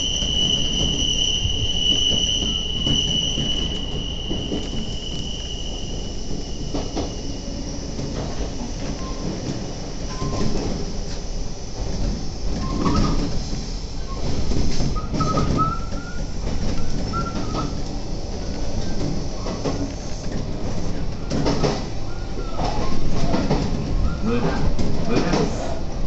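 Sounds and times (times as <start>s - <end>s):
wheel squeals: 0.0s - 7.3s, 12.6s - 13.3s, 14.1s - 17.9s
train rumble: 0.0s - 26.0s.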